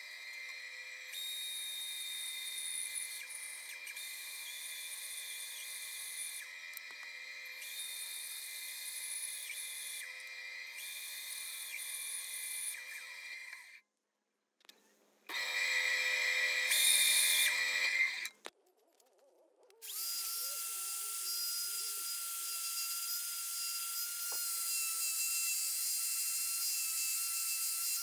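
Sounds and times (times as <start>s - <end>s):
band saw cutting wood: 19.8s - 28.0s.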